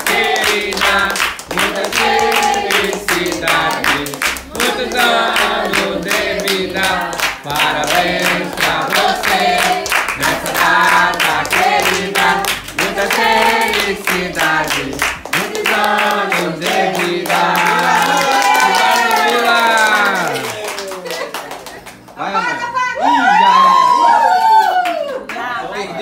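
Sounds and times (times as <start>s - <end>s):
group singing a birthday song: 0.0s - 20.5s
rhythmic hand clapping: 0.0s - 22.3s.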